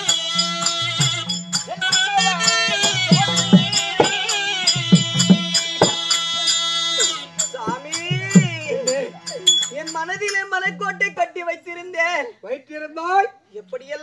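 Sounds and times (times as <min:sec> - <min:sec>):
drum strokes: 0:00.0 - 0:10.9
light rattling percussion: 0:00.0 - 0:11.1
wavering vibrato melody: 0:00.0 - 0:11.1.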